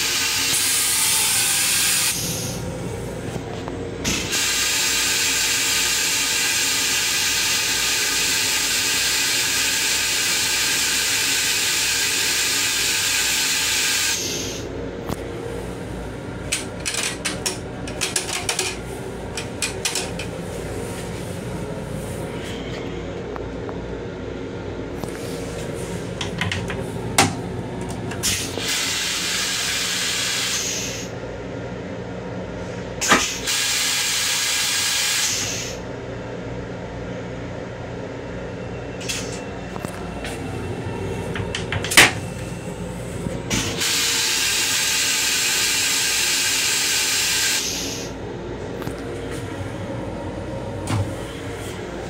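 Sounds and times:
toilet flushing with hissing water: 0:00.0 - 0:02.6, 0:04.1 - 0:14.7, 0:28.2 - 0:31.1, 0:33.0 - 0:35.8, 0:43.5 - 0:48.1.

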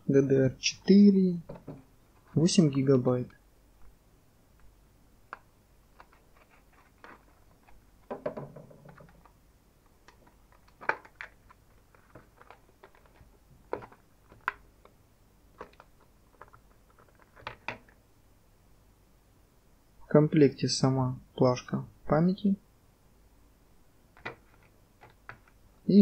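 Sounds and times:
plastic blister pack crinkling: 0:10.0 - 0:15.0.

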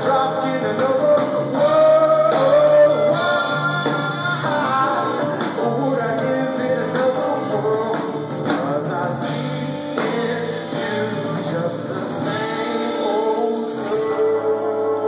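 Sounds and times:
live band playing: 0:00.0 - 0:15.0
man singing: 0:00.0 - 0:15.0.

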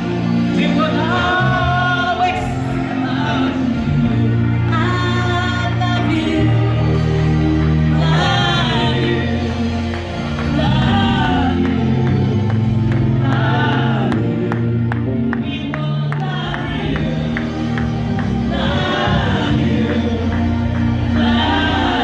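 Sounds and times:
gospel song over sound system: 0:00.0 - 0:22.0.

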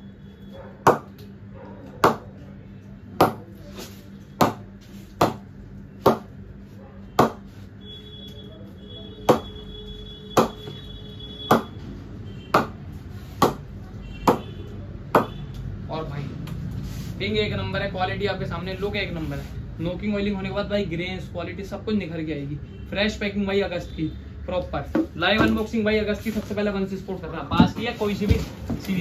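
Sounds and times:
cricket ball knocking on bat: 0:00.8 - 0:01.1, 0:03.2 - 0:03.5, 0:04.4 - 0:04.6, 0:06.0 - 0:06.3, 0:11.5 - 0:11.7, 0:12.5 - 0:12.8.

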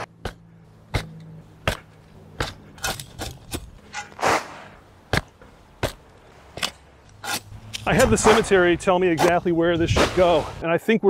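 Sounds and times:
shovel chopping into soil: 0:00.9 - 0:06.0.

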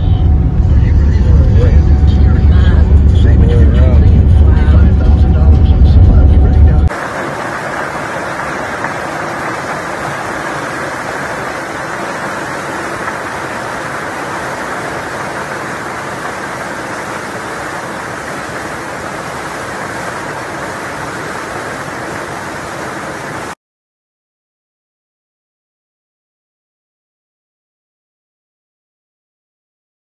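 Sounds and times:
heavy hail and rain pelting: 0:06.9 - 0:23.6.

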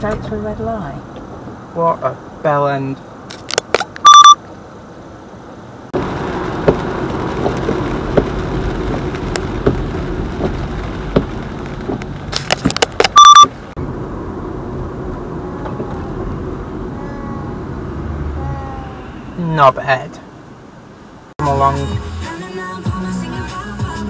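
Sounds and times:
car road and engine noise: 0:00.0 - 0:24.0
high electronic beeps: 0:04.0 - 0:04.4, 0:13.2 - 0:13.5
windscreen wipers: 0:06.0 - 0:19.7.

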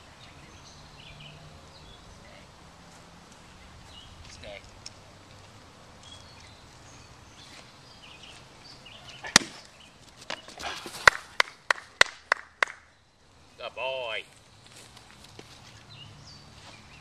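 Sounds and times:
man clapping hands: 0:11.0 - 0:12.9.

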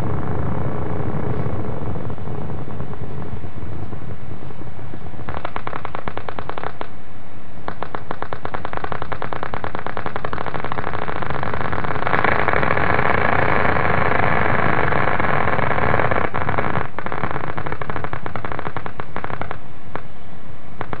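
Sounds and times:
rapid crackling pops from loudspeaker: 0:04.9 - 0:07.0, 0:07.6 - 0:20.1, 0:20.8 - 0:21.0.

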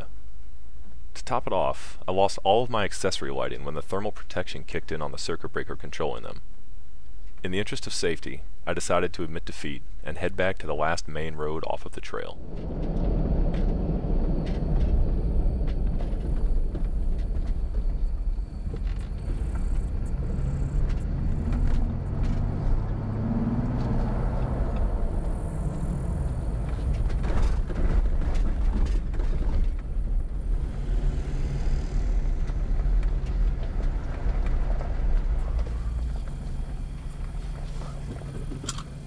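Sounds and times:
tyre and road rumble: 0:10.1 - 0:39.0
car engine hum: 0:11.4 - 0:39.0.

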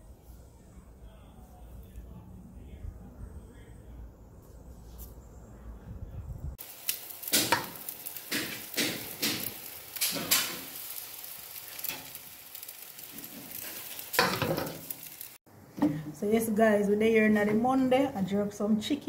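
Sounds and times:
chicken sizzling on a grill: 0:06.6 - 0:15.4.

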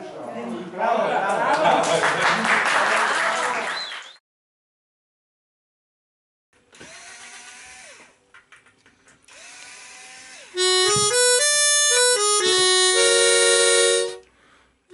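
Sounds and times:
reed instrument playing: 0:10.6 - 0:14.3.

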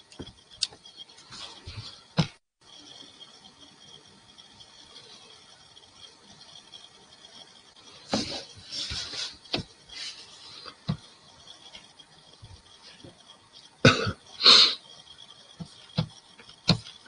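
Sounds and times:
man coughing: 0:13.9 - 0:14.2.

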